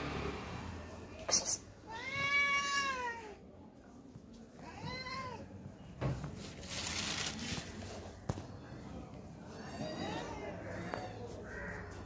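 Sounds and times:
cat meowing: 1.8 - 3.4, 4.6 - 5.5, 9.5 - 11.2
rustling: 6.1 - 8.2.

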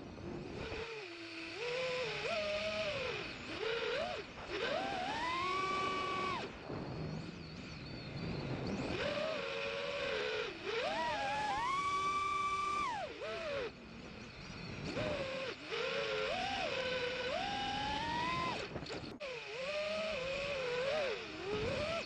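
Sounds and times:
drone motors and propellers whining: 0.0 - 22.0.

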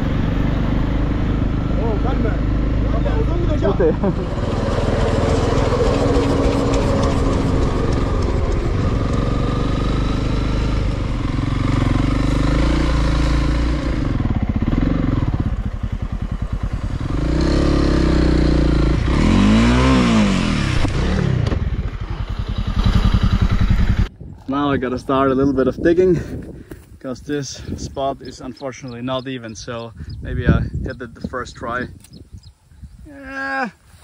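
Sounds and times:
motorcycle engine revving: 0.0 - 24.8.

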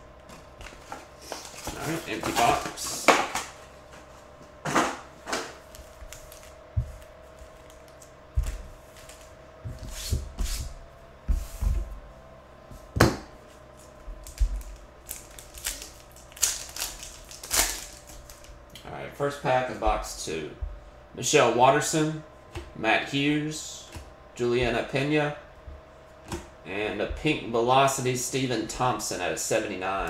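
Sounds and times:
foil wrappers crinkling: 5.6 - 8.0, 13.8 - 18.5
foil pack tearing open: 14.2 - 18.5.

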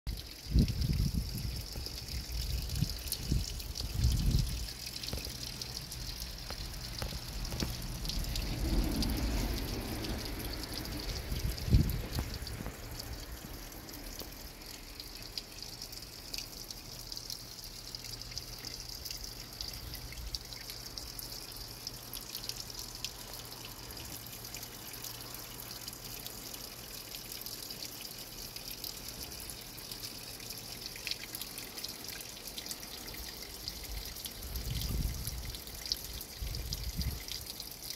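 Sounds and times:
water trickling and splashing: 0.1 - 37.9.

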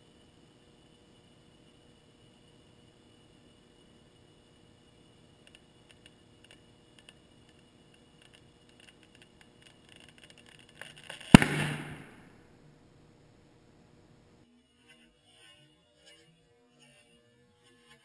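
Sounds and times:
ball bursting bang: 11.3 - 12.5.

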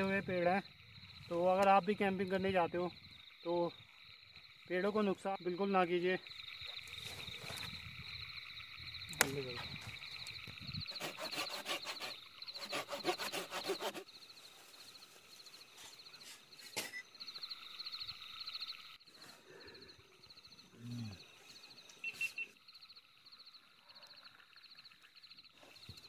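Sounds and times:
sharp snap: 9.1 - 9.4
saw cutting wood: 10.9 - 14.1.

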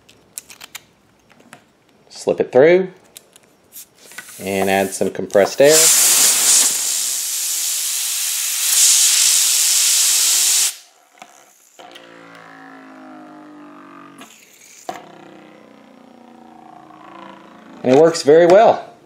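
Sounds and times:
compressed air hissing: 3.7 - 10.9
fidget spinner humming: 10.8 - 18.1.

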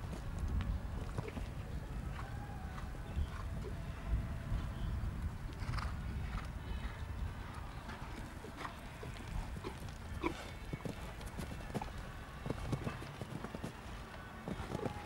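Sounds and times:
horse hoofbeats on grass: 7.6 - 15.0.

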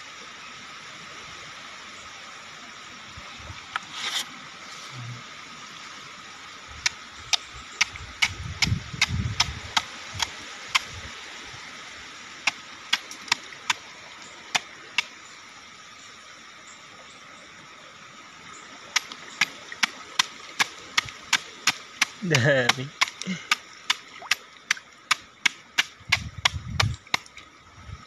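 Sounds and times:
fish popping at water surface: 19.0 - 27.4.

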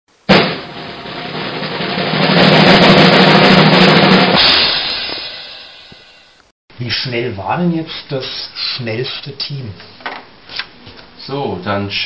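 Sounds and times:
drum roll: 0.1 - 6.4.

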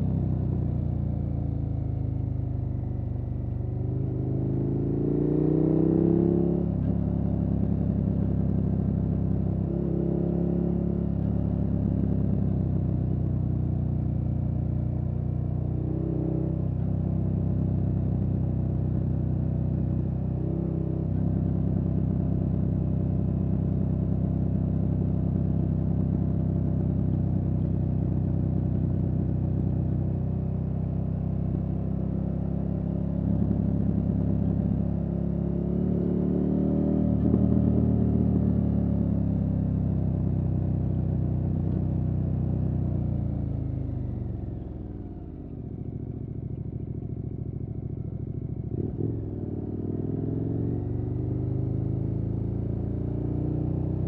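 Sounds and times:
motorcycle engine revving: 3.8 - 7.0, 33.2 - 39.7, 48.5 - 54.0.

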